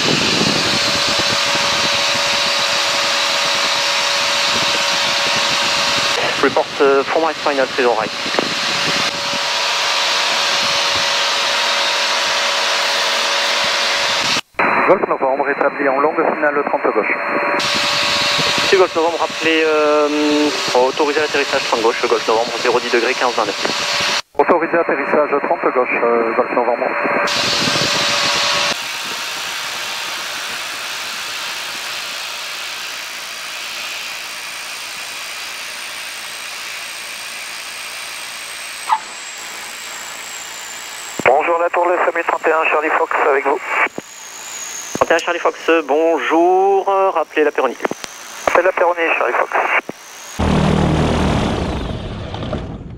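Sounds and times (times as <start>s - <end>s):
aircraft engine at low power: 0.0s - 14.5s, 16.1s - 25.3s, 26.1s - 52.9s.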